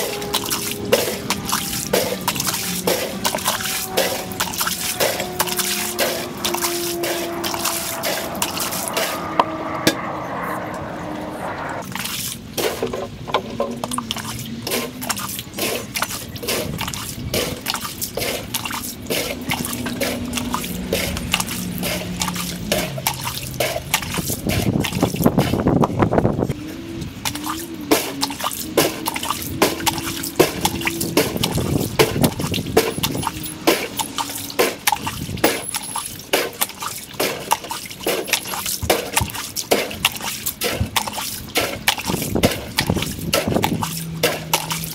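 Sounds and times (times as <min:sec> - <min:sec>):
water dripping and gurgling: 0:00.0 - 0:10.1, 0:11.8 - 0:44.9
short pitched tones: 0:00.0 - 0:11.8.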